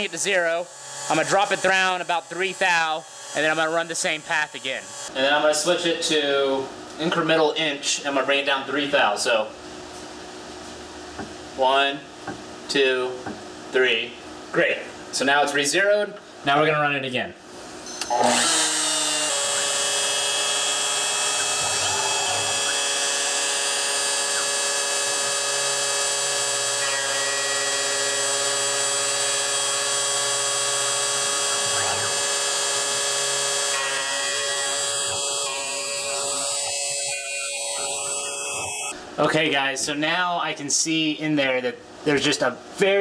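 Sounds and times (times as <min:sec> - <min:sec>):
router spindle milling: 0:18.2 - 0:38.9.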